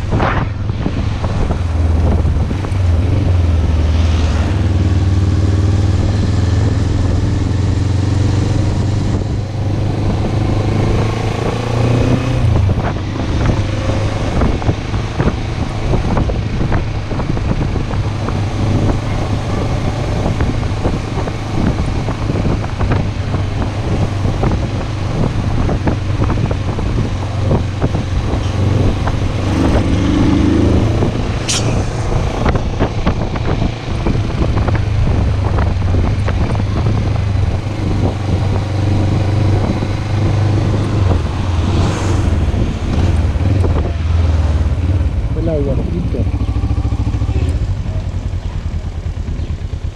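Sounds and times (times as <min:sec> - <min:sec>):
wind and road noise: 0:00.0 - 0:49.9
motorcycle engine running: 0:14.3 - 0:41.7, 0:42.3 - 0:49.9
brief sharp high sound: 0:31.4 - 0:32.3.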